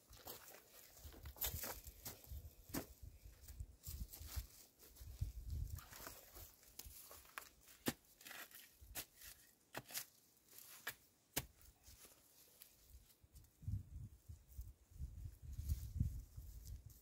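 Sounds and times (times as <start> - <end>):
shovel scraping soil and leaves: 5.8 - 12.8.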